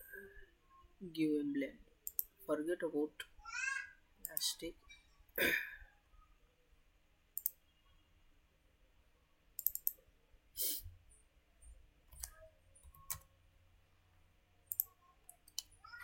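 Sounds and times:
mouse button clicks: 0:07.4 - 0:07.6, 0:09.6 - 0:10.0.

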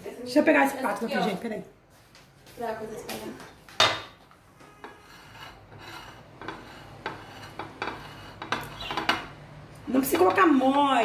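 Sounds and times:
spatula scraping on plate: 0:04.6 - 0:10.8.

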